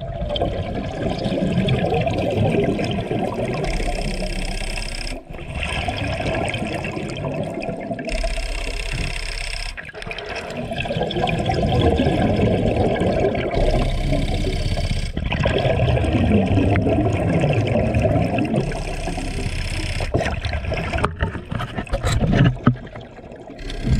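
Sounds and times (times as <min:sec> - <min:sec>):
exhaled bubbles rumbling: 0:00.0 - 0:09.2, 0:09.8 - 0:23.9
clicks: 0:03.6 - 0:05.7, 0:08.1 - 0:10.6.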